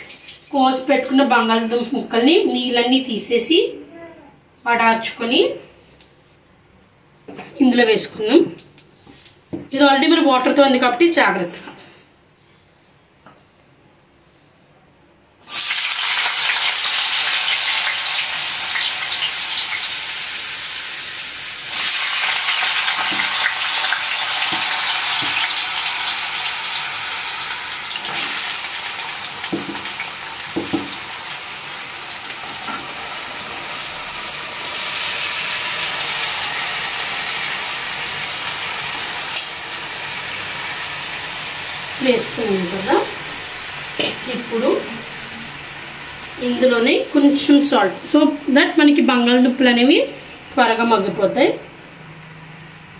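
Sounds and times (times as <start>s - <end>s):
potatoes sizzling in oil: 15.4s - 51.4s.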